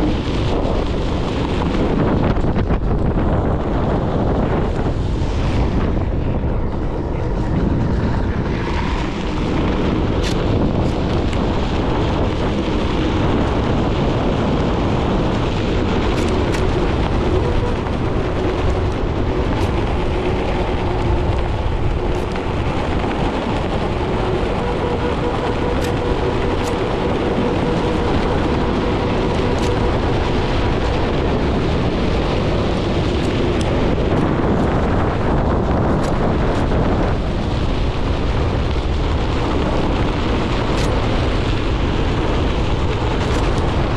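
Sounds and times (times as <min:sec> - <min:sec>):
wind rushing over microphone: 0:00.0 - 0:43.9
electric motor whine: 0:04.4 - 0:38.8.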